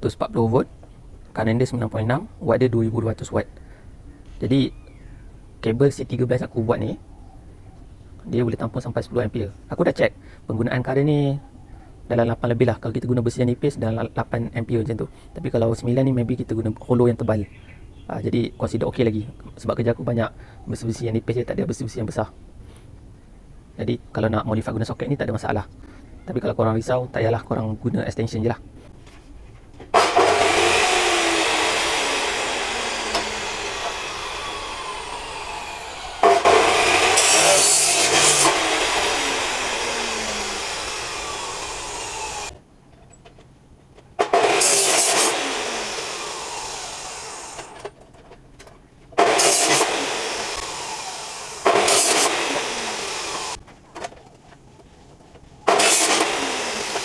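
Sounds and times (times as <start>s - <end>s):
cut-off saw cutting steel tube: 30.0s - 42.6s, 44.2s - 47.8s, 49.2s - 53.6s, 55.7s - 57.0s.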